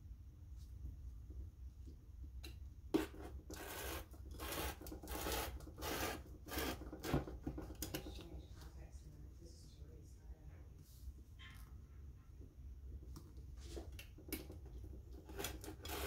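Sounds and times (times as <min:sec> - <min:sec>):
blade cutting through paper: 0:03.0 - 0:07.2, 0:15.2 - 0:16.0.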